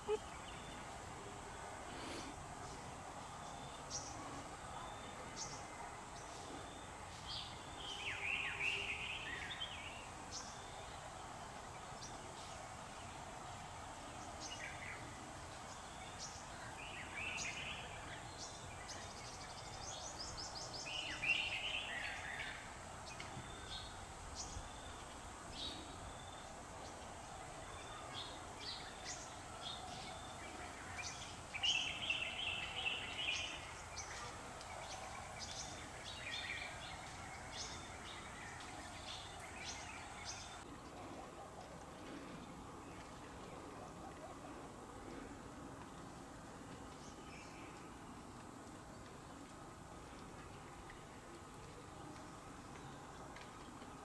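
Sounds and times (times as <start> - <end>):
background hum: 0.0 - 54.0
small birds chirping: 14.0 - 54.0.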